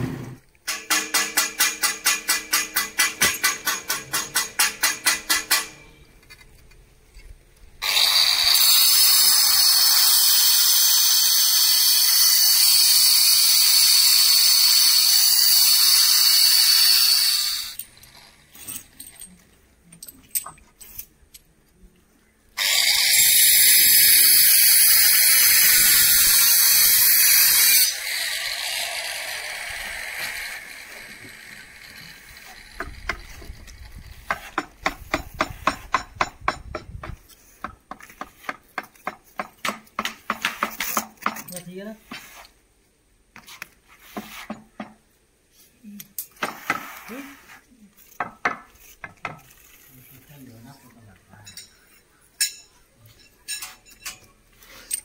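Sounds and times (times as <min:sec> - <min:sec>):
angle grinder cutting stone: 0:07.8 - 0:18.4, 0:22.6 - 0:33.6.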